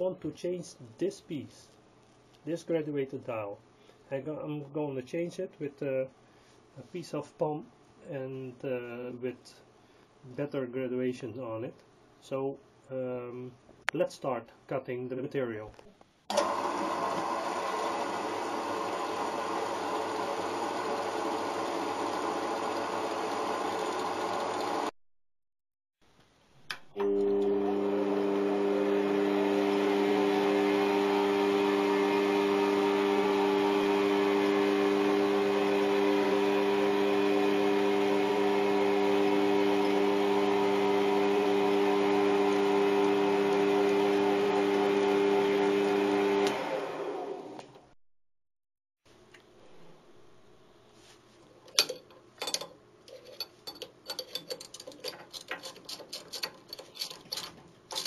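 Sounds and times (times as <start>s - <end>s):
lathe spindle humming: 16.4s - 24.9s
band saw cutting plastic rod: 52.5s - 58.0s.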